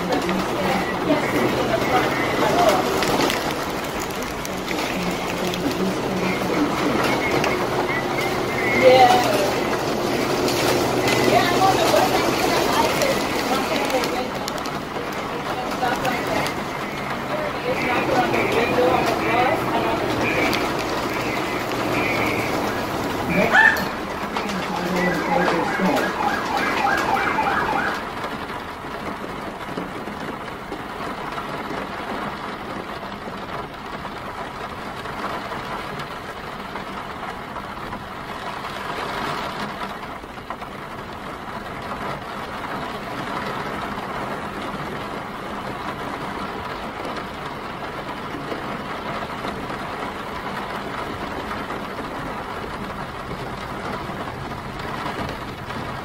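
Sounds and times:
emergency vehicle siren: 0.0 - 30.1
rain: 0.0 - 56.0
traffic: 0.0 - 56.0.

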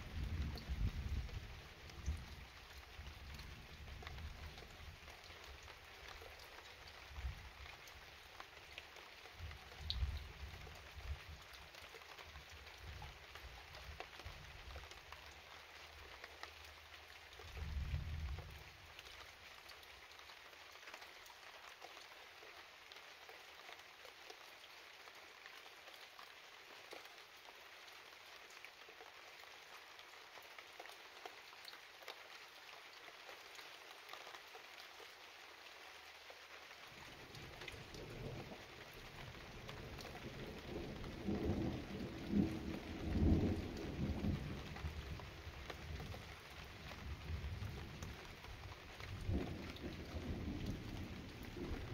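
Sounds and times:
rain falling steadily: 0.0 - 51.9
low thunder rumbles: 39.5 - 45.2, 49.2 - 51.9.

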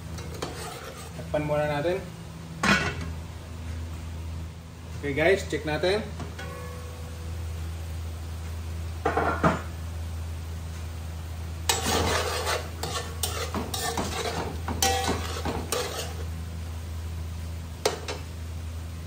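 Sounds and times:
steady low hum: 0.0 - 19.0
metal spoon scraping a pot: 0.2 - 1.2, 11.7 - 16.3
sauce sizzling: 11.7 - 16.8.

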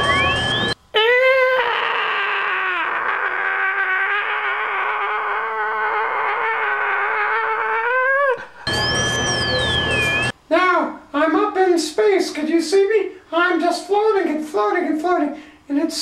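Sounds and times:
high vocal wail: 0.9 - 10.3.

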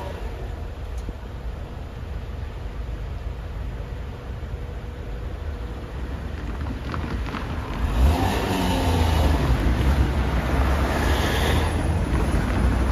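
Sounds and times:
cars driving past: 5.6 - 12.9
car accelerating by: 7.8 - 12.3.

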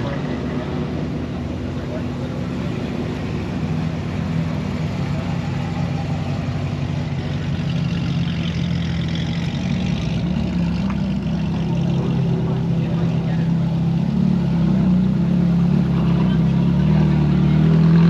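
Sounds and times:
car engine idling: 0.0 - 17.8.

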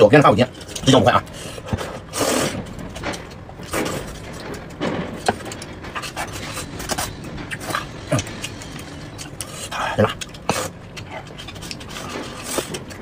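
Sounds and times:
person chewing: 5.6 - 13.0.

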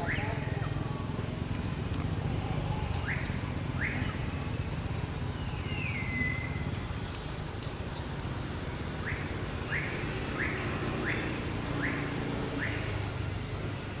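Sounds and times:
rising whistled calls: 9.0 - 13.4.

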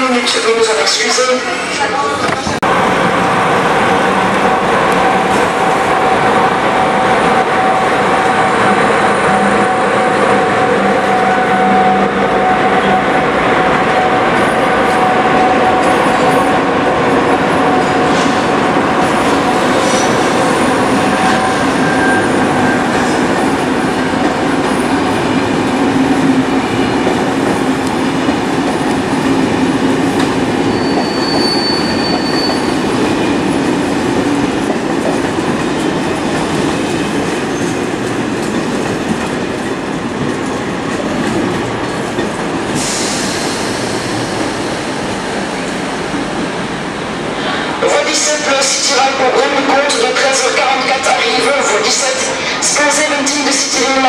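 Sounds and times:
train wheels squealing on rails: 19.1 - 23.4, 30.6 - 32.9, 42.7 - 44.7.

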